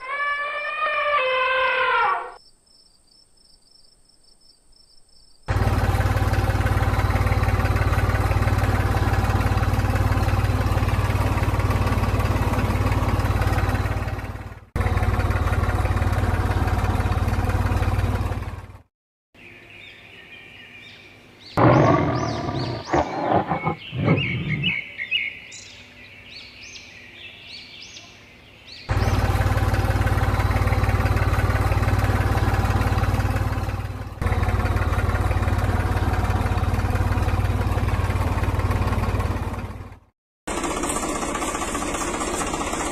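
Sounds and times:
animal roaring call: 0.0 - 2.4, 21.6 - 24.8
short higher animal calls: 0.0 - 2.4, 21.6 - 25.0
small tractor engine running: 5.5 - 18.9, 21.6 - 24.8, 28.9 - 42.9.

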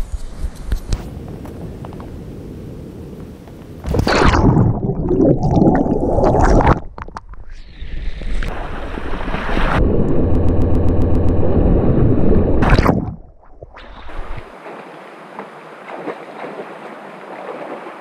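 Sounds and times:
churning water: 3.8 - 7.1, 12.6 - 18.0
water splashing: 3.8 - 7.3, 12.6 - 18.0
river water rushing: 14.0 - 18.0.

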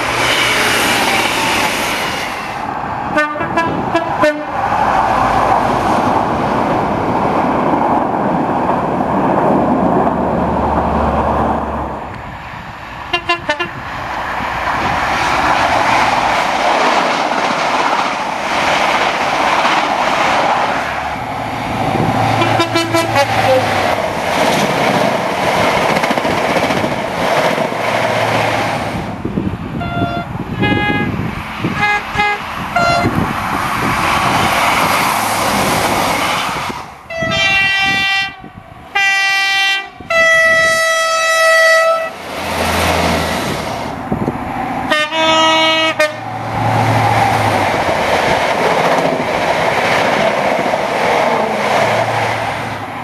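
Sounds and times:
train rumbling along track: 0.0 - 53.0
train two-tone horn: 0.2 - 4.6, 13.1 - 13.8, 22.3 - 23.7, 29.8 - 31.2, 31.8 - 33.2, 37.1 - 42.2, 44.9 - 46.3.

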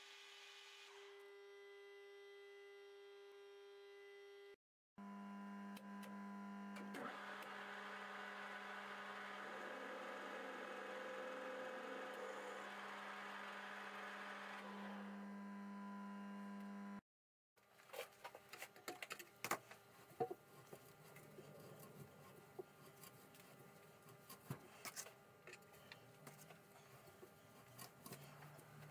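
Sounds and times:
lathe humming: 7.0 - 15.8.

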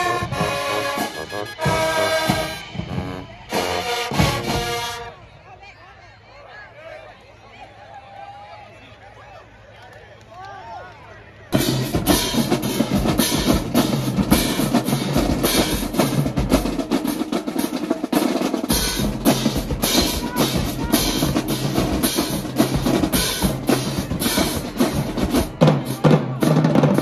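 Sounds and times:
bass drums: 0.0 - 5.0, 11.6 - 18.0, 18.7 - 27.0
snare drums: 0.0 - 5.1, 11.6 - 27.0
tenor drums: 0.0 - 5.1, 11.6 - 27.0.

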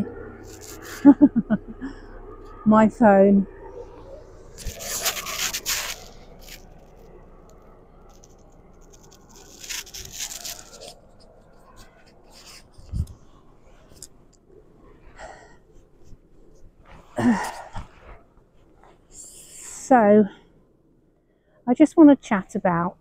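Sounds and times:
phone rubbing against microphone: 0.4 - 1.0, 4.4 - 7.0, 8.1 - 14.1.

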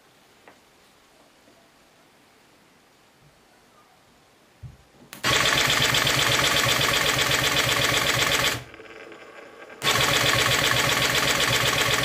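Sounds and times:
chainsaw engine running: 5.2 - 8.8, 9.8 - 12.0.

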